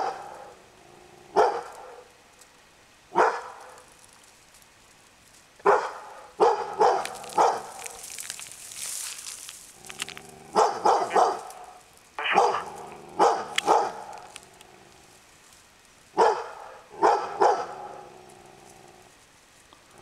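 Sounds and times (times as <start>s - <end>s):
dog barking: 0.0s - 0.6s, 1.3s - 2.1s, 3.1s - 3.8s, 5.6s - 8.0s, 10.5s - 14.3s, 16.2s - 18.0s.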